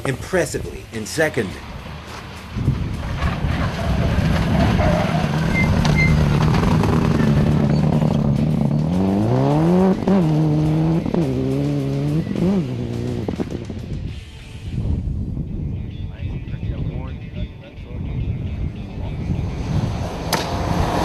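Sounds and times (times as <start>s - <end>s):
rally car engine revving: 1.6s - 14.6s, 18.5s - 21.0s.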